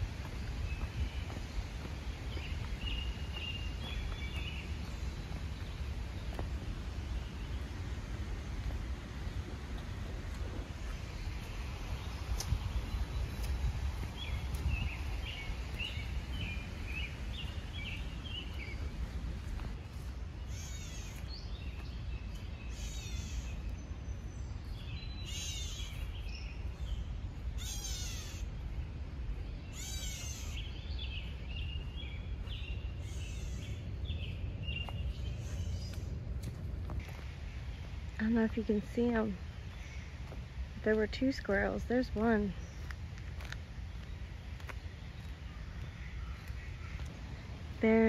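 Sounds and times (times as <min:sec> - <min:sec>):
bird mewing call: 0:20.5 - 0:21.3, 0:27.6 - 0:28.5, 0:29.7 - 0:30.8.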